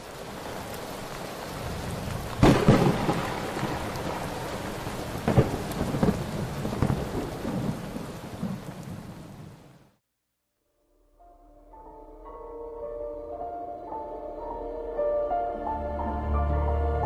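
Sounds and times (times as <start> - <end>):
steady rain: 0.0 - 10.0
thunder: 1.2 - 9.5.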